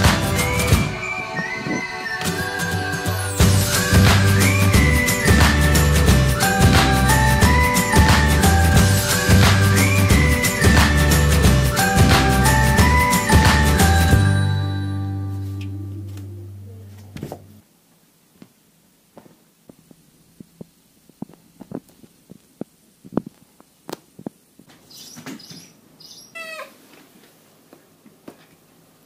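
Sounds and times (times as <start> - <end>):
music: 0.0 - 16.9
kitten meowing: 26.3 - 26.8.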